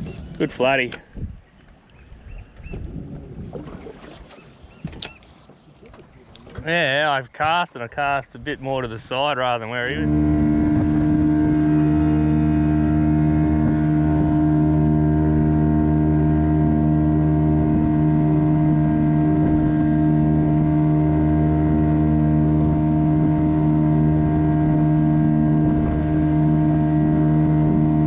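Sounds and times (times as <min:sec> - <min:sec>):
outboard motor running: 0:08.9 - 0:28.0.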